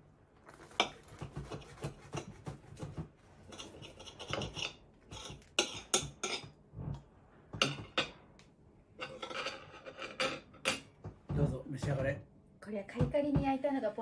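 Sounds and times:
cutlery scraping on plate: 0.5s - 6.6s, 8.9s - 11.0s
knife sawing through crisp food: 0.6s - 2.8s.

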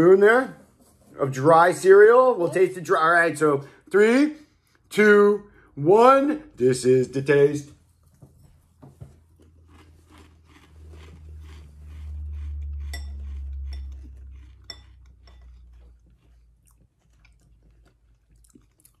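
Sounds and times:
crunching dry cereal: 9.3s - 19.0s.

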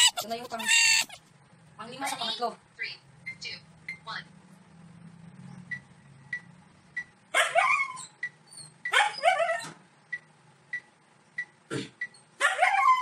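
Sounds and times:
dog whining yelps: 0.0s - 1.2s, 7.4s - 8.2s, 8.9s - 9.8s, 12.4s - 13.0s.

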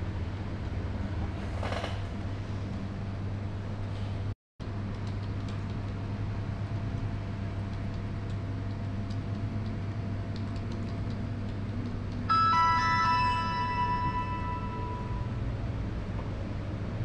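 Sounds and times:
low room hum: 0.0s - 17.0s
mobile phone ringtone: 12.3s - 15.5s.

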